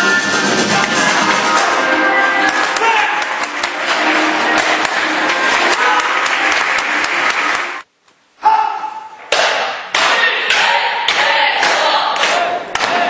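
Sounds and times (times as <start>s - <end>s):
short shouts: 8.4s - 9.2s.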